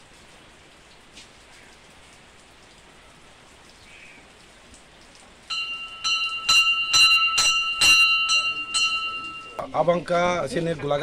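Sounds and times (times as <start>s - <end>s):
hand bell ringing: 5.5s - 9.7s.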